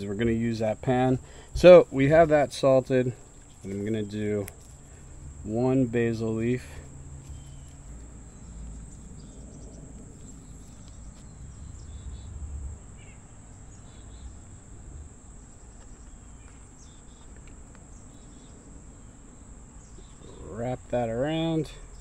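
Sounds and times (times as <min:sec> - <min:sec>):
faint bird chirps: 0:06.8 - 0:14.5, 0:15.4 - 0:20.6.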